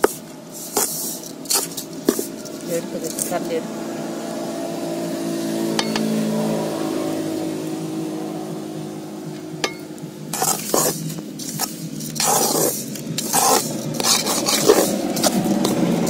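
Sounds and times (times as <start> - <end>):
ladle scraping a metal pot: 0.0 - 3.5, 9.6 - 16.0
steady hum: 0.0 - 16.0.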